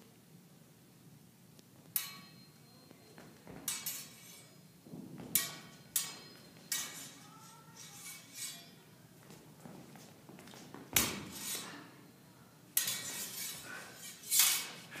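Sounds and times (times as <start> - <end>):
sword blades clashing: 2.0 - 2.5, 3.7 - 4.6, 5.4 - 8.9, 11.0 - 11.8, 12.8 - 14.9.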